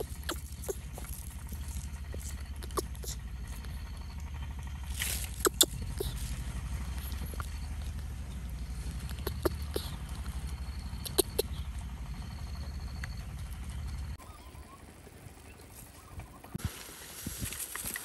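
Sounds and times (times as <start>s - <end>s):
dry leaves crackling: 0.0s - 3.9s, 4.6s - 11.9s, 16.6s - 18.0s
steady low rumble: 0.0s - 16.5s.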